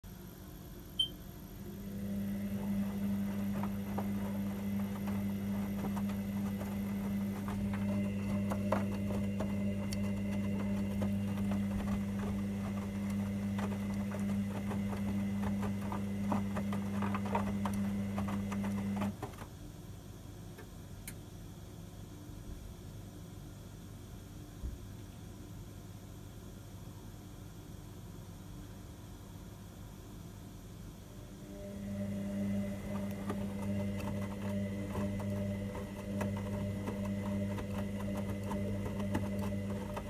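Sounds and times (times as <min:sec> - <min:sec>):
washing machine motor hum: 0:00.0 - 0:25.0, 0:30.2 - 0:40.0
laundry and water splashing: 0:02.4 - 0:19.4.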